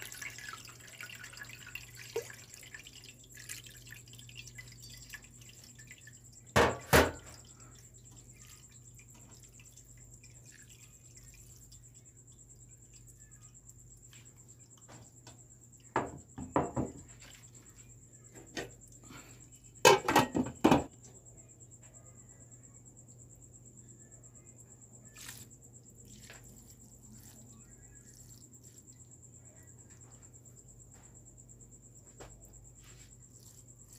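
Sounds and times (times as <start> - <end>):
water dripping: 0.0 - 14.8
plastic ladle knocking on metal strainer: 16.0 - 17.0.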